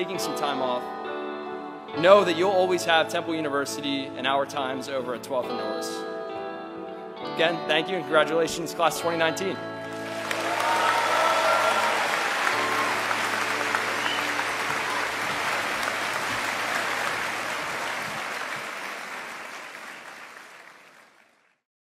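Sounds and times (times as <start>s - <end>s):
audience applauding: 9.8s - 21.6s.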